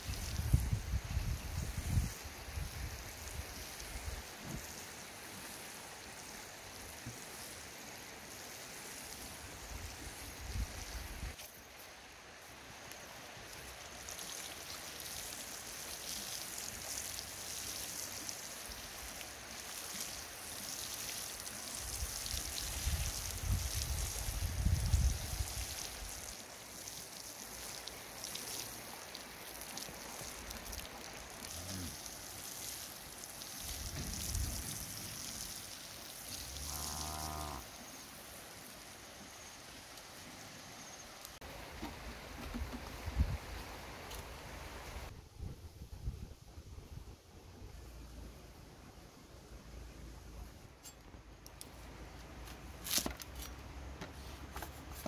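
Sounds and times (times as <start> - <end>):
water spraying onto soil: 0.0 - 45.1
cow mooing: 36.6 - 37.6.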